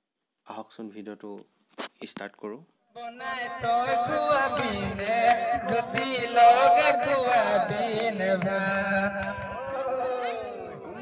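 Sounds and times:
singing voice: 0:02.9 - 0:11.0
drum beats: 0:03.5 - 0:09.9.

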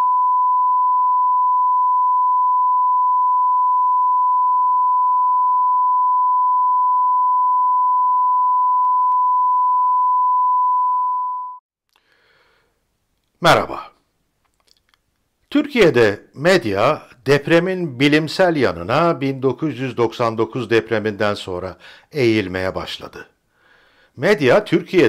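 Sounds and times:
steady pure beep tone: 0:00.0 - 0:11.6.

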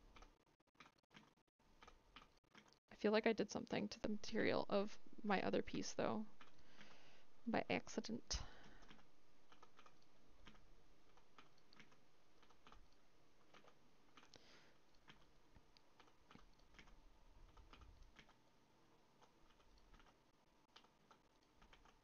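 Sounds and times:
computer keyboard keystrokes: 0:08.7 - 0:14.4, 0:19.2 - 0:22.0.

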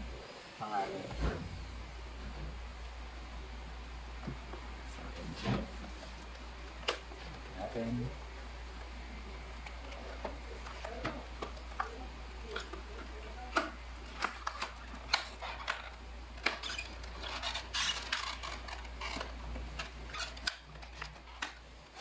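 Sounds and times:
steady low hum: 0:00.0 - 0:22.0
cardboard and plastic packaging handled: 0:09.7 - 0:22.0.

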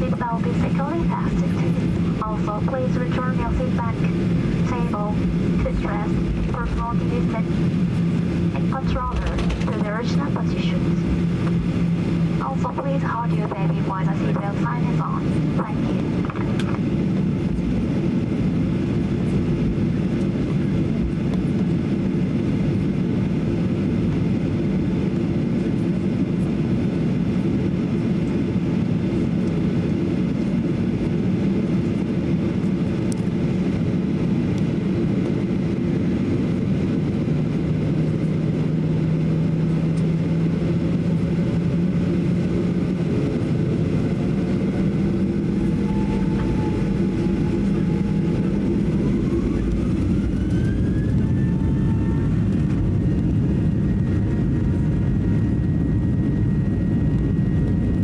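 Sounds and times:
jet engines droning: 0:00.0 - 0:58.0
faint rising whine: 0:43.9 - 0:54.3.

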